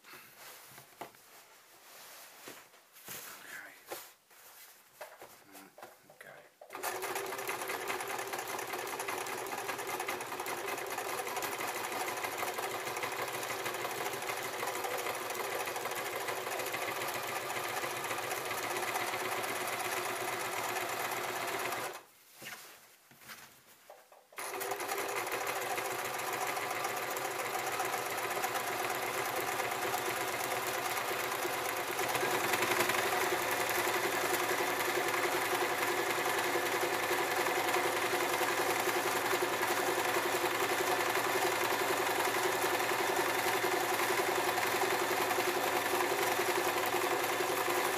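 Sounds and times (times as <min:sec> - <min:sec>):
sewing machine running: 0:06.7 - 0:22.0, 0:24.4 - 0:47.9.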